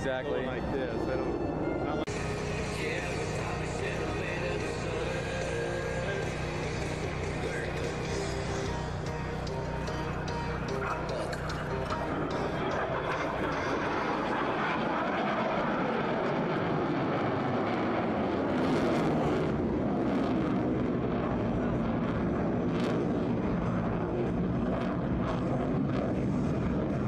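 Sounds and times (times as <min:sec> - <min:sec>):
jet engine roar: 0:00.0 - 0:27.0.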